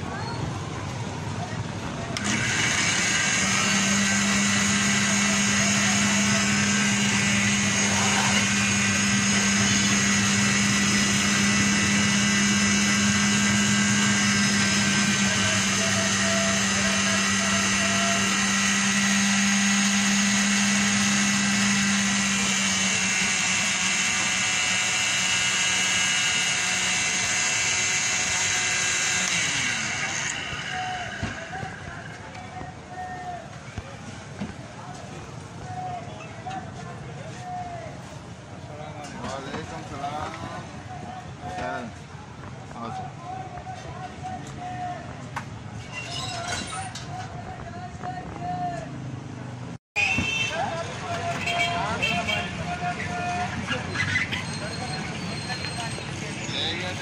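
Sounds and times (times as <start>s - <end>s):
blender running: 2.2s - 32.4s.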